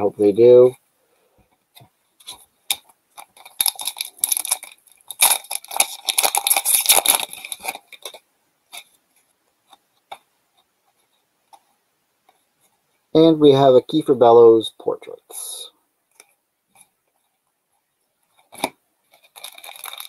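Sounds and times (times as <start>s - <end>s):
foil wrapper crinkling and tearing: 2.2s - 8.9s, 18.5s - 20.0s.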